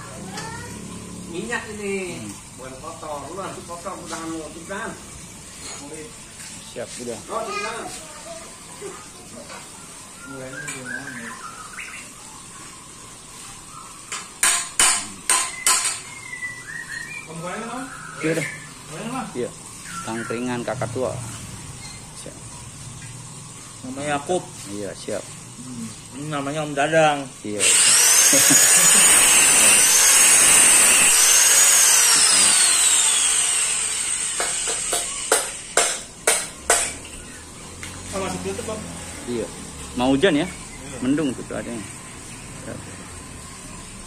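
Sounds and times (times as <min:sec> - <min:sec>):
angle grinder whining: 0:26.8 - 0:41.8.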